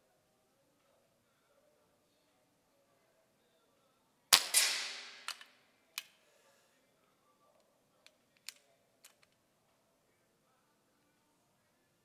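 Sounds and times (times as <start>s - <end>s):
air rifle shot crack and hiss: 4.3s - 5.4s.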